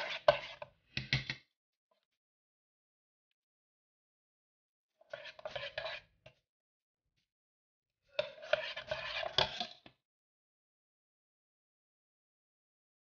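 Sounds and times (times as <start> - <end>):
metal spoon scraping saucepan: 0.0 - 0.7, 5.1 - 6.0, 8.2 - 9.9.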